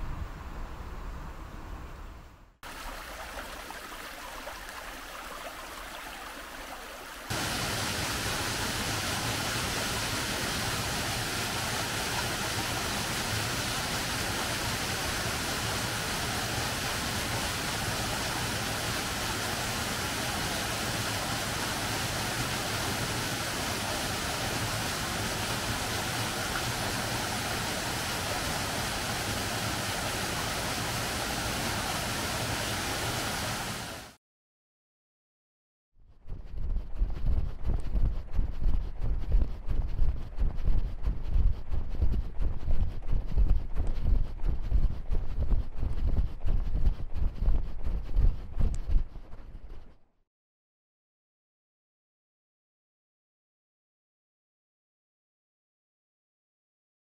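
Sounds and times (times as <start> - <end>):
water rushing in channel: 2.6 - 34.2.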